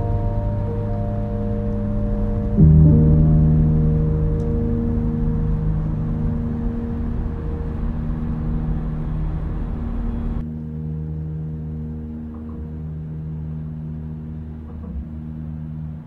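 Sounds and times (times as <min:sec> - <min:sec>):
car cabin drone: 0:00.0 - 0:10.5.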